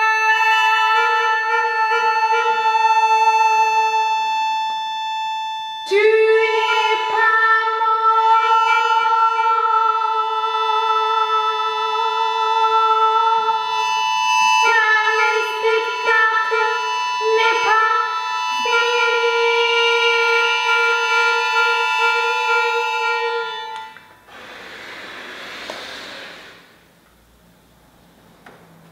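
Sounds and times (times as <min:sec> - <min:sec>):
button accordion playing chords: 0:00.0 - 0:24.4.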